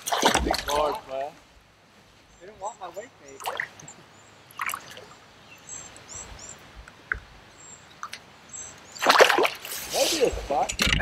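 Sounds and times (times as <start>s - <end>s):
river running: 0.0s - 11.0s
songbirds chirping: 0.0s - 11.0s
fish splashing at surface: 9.0s - 9.8s.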